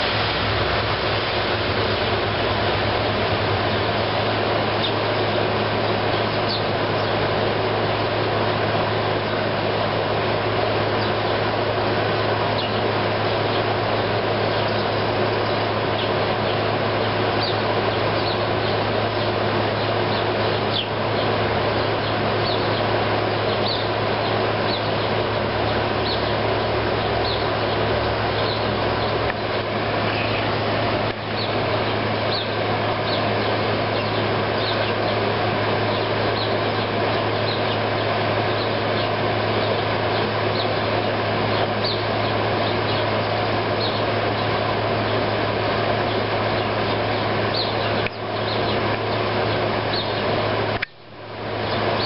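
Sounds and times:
air conditioner humming: 0.0s - 52.0s
sparrow chirps: 4.7s - 7.2s, 12.5s - 13.7s, 14.5s - 16.6s, 17.3s - 29.2s, 30.0s - 30.5s, 31.3s - 45.2s, 46.0s - 50.3s.

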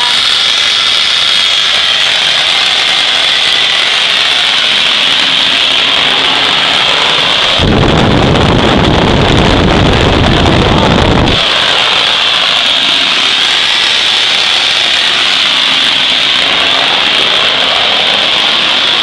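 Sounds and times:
turbojet high whine: 0.0s - 19.0s
combustion roar: 1.7s - 19.0s
rough low rumble: 7.2s - 11.5s.

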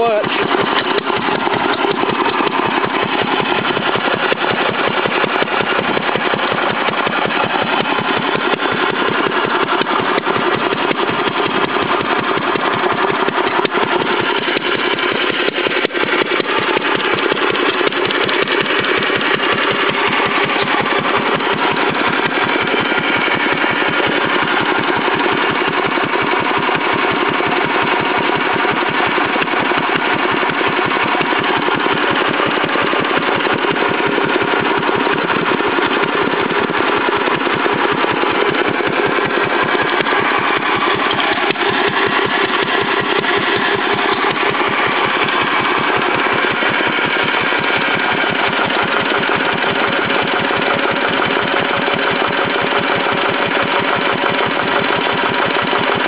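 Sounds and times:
engine exhaust rapid beat: 0.0s - 56.0s.

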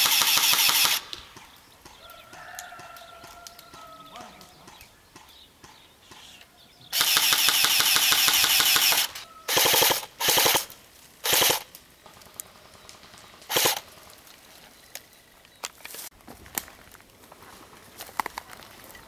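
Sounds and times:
airsoft rifle firing bursts: 0.0s - 1.2s, 6.9s - 14.1s.

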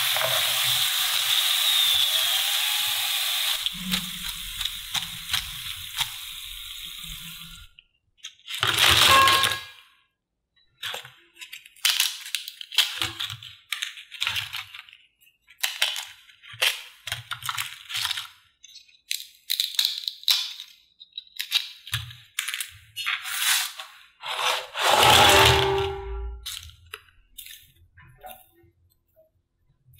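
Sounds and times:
hot oil sizzling: 0.0s - 7.7s.

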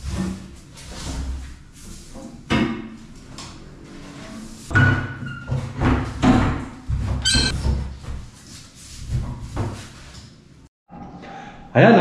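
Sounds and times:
bathtub squeak: 4.7s - 5.8s, 7.2s - 7.7s
bathtub knocks and thuds: 4.7s - 8.2s.

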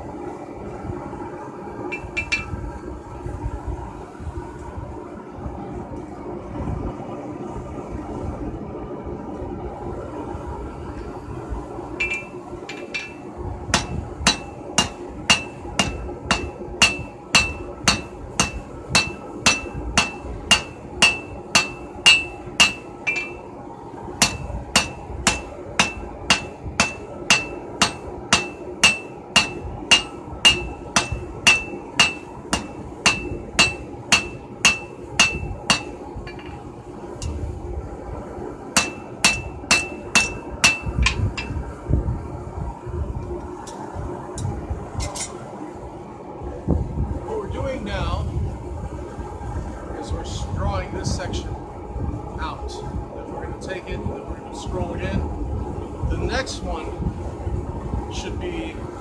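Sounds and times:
hammer striking steel on anvil: 1.9s - 2.6s, 12.0s - 23.5s, 24.2s - 36.6s, 38.8s - 41.6s.

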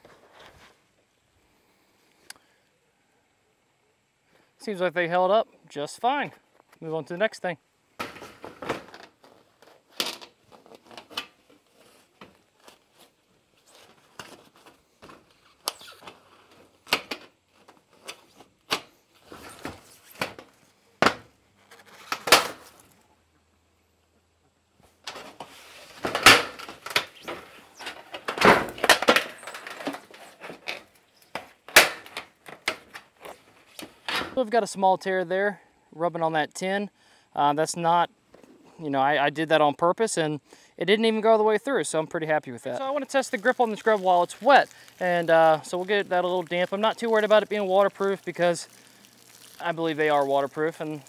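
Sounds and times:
glove scraping tin roof sheet: 8.1s - 23.0s, 25.0s - 34.4s, 42.7s - 51.0s.

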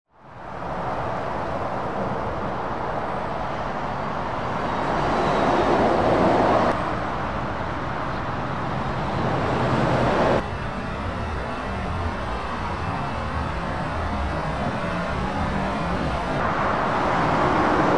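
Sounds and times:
motorway traffic noise: 0.1s - 17.9s
truck engine passing close: 4.0s - 10.4s, 13.8s - 17.9s.

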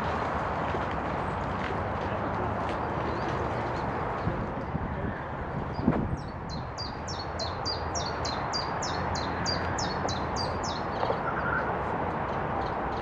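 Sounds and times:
songbird singing: 5.7s - 11.7s.

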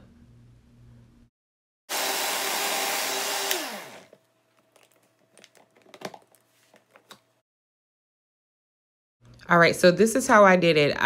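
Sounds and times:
blender running: 1.9s - 4.2s
blender switch click: 3.3s - 3.8s.

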